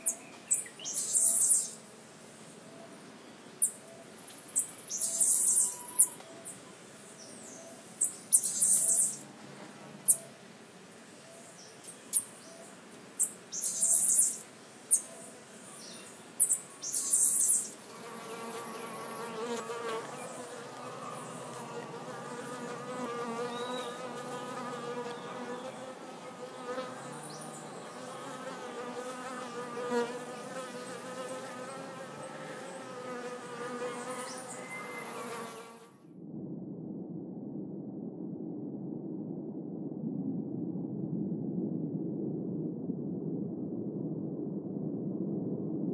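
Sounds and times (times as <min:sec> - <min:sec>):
bees buzzing: 0:17.9 - 0:35.8.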